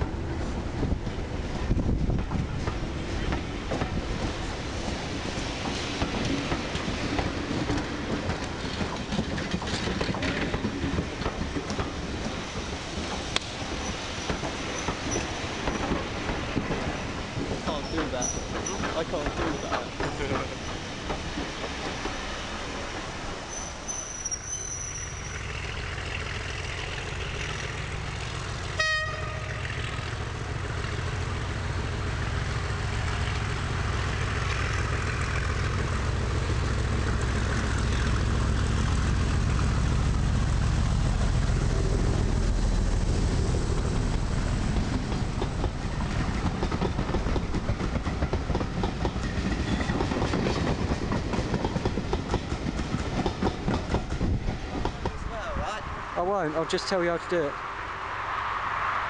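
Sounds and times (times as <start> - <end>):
diesel locomotive engine rumble: 0.0 - 59.0
train coaches rolling by: 0.0 - 59.0
short train horn toot: 28.8 - 29.6.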